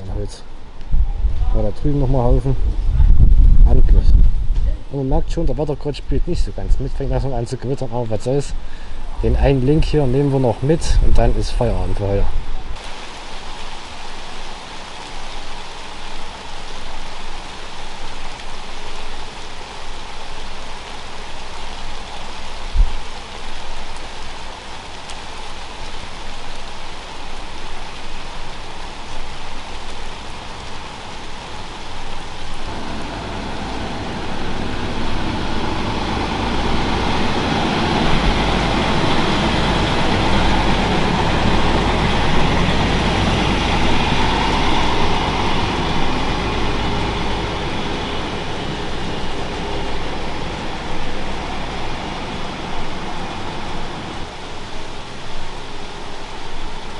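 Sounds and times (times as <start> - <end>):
steady rain: 0.0 - 56.9
tram passing: 30.2 - 56.4.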